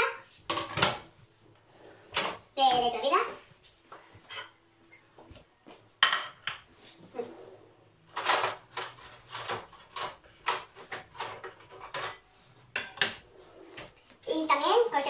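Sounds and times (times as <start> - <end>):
cutlery clinking in a drawer: 8.1 - 13.2.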